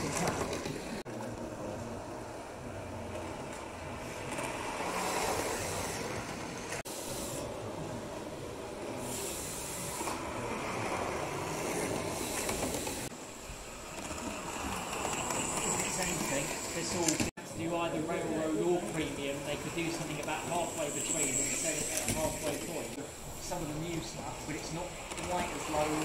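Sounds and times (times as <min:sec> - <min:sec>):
steam hiss: 0:04.8 - 0:07.7, 0:08.8 - 0:10.7, 0:11.5 - 0:17.2, 0:19.4 - 0:26.0
model train motor rumble: 0:08.9 - 0:17.3, 0:18.8 - 0:26.0.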